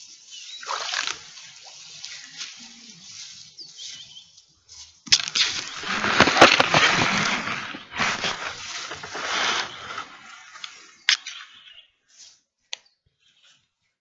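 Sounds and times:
rustling and handling noise: 0.0 - 11.1.

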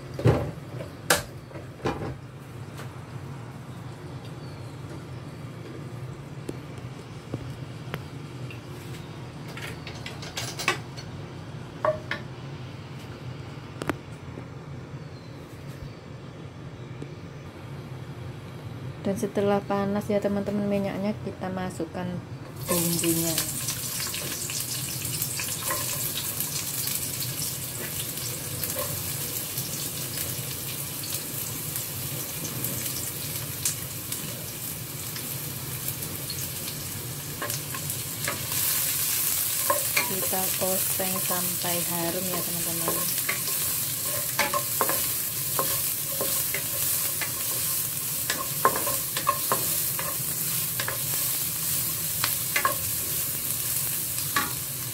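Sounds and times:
shallots and garlic sizzling in oil: 19.0 - 54.9.

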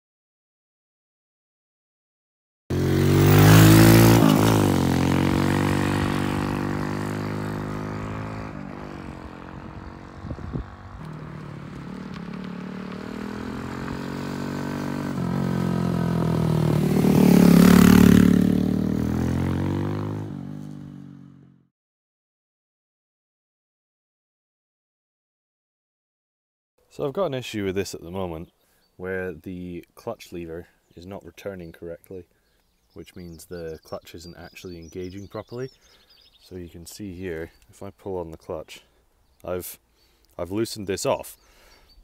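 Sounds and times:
motorcycle engine running: 2.7 - 21.6.

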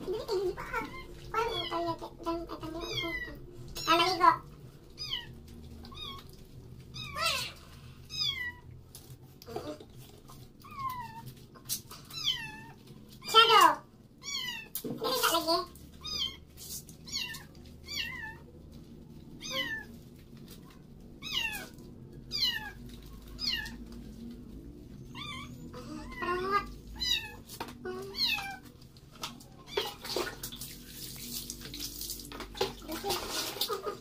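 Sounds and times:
kitten meowing: 2.7 - 4.1, 5.0 - 6.4, 14.2 - 14.7, 17.1 - 18.4, 19.4 - 19.9, 21.2 - 21.7, 22.3 - 22.8, 23.4 - 23.8, 25.0 - 27.4, 28.0 - 28.6
water splashing: 28.1 - 34.0.

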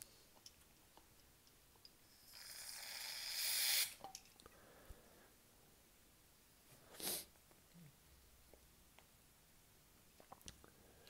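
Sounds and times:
aerosol spray hiss: 2.4 - 4.0.

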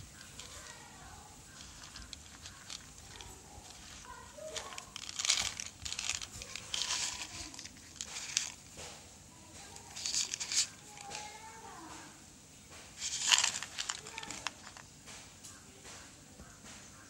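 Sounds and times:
plastic packaging crinkling: 0.0 - 8.7, 9.6 - 11.4, 13.0 - 14.8.

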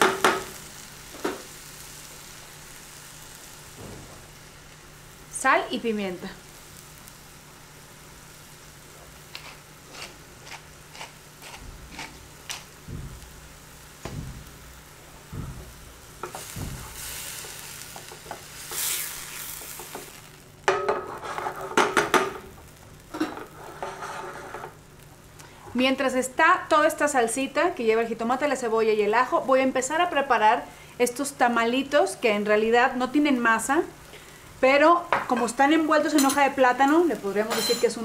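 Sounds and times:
vegetables sizzling in oil: 0.0 - 38.0
utensil knocking against pan: 14.0 - 14.6, 15.3 - 17.0.

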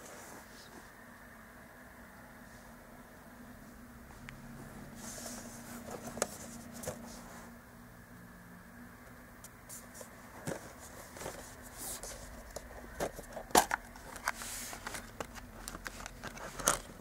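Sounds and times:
metal case clicks and rustles: 12.5 - 17.0.

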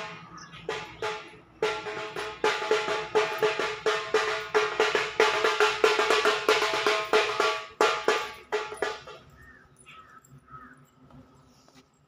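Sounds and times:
rhythmic percussion music: 0.0 - 9.5.

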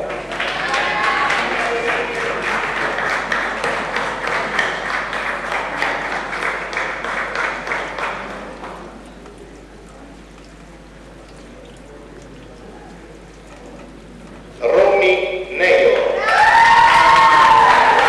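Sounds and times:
audience applauding: 0.0 - 9.0, 16.2 - 18.0.

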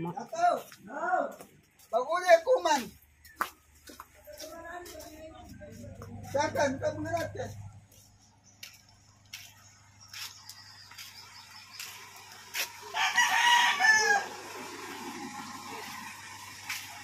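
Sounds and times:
rooster crowing: 12.8 - 14.8.

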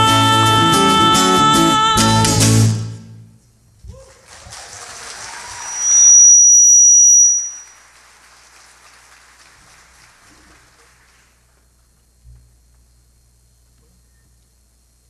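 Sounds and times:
audience applauding: 4.0 - 6.1, 7.6 - 11.6
faint hiss: 5.3 - 14.8
piercing high whistle: 5.4 - 7.9.

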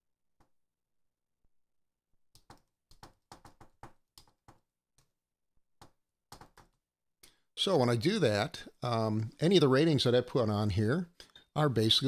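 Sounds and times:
typing on computer keyboard: 2.4 - 4.6, 5.8 - 6.8.

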